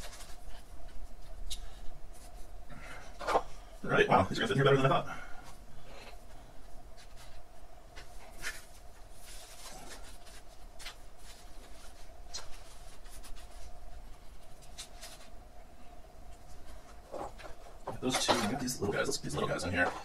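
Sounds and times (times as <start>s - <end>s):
faint steady hum: 0.0s - 20.0s
fingers rustling in potting mix: 6.2s - 15.5s.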